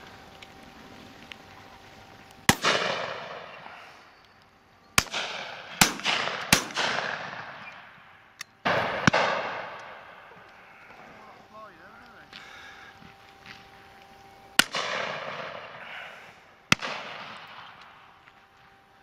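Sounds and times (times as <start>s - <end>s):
shotgun shots: 2.5s - 3.7s, 5.0s - 8.0s, 8.6s - 10.3s, 14.6s - 15.9s, 16.7s - 18.1s.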